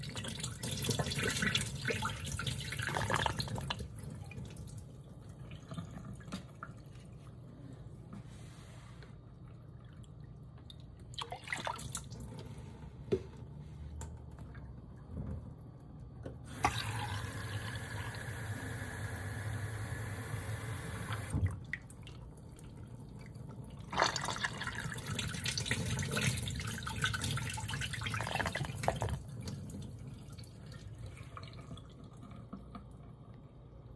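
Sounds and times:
water splashing into a ceramic tank: 0.0s - 7.1s, 9.8s - 12.4s, 16.4s - 19.1s, 21.1s - 33.2s.

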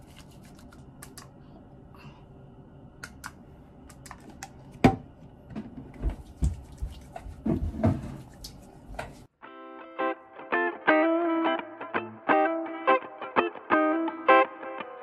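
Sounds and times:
hands rubbing together: 0.0s - 1.3s.

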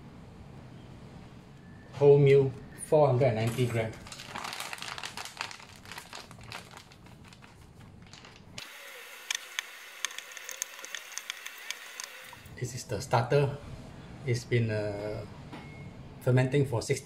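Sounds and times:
plastic bag crinkling: 3.7s - 8.6s
dough mixing clicks: 6.4s - 12.5s.

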